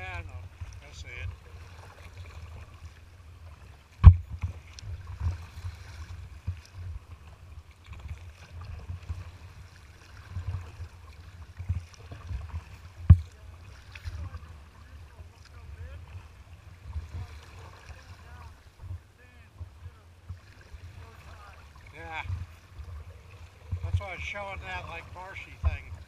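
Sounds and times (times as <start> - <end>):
low wind rumble on microphone: 0.0 - 24.8
water slapping against kayak hull: 0.0 - 26.0
kayak bow thumping into waves: 3.9 - 7.2, 10.2 - 26.0.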